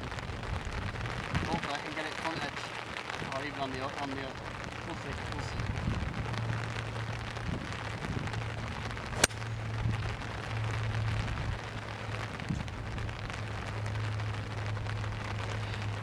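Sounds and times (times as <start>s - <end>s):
rain hissing: 0.0s - 16.0s
low steady hum: 4.4s - 16.0s
golf club striking ball: 9.2s - 9.5s.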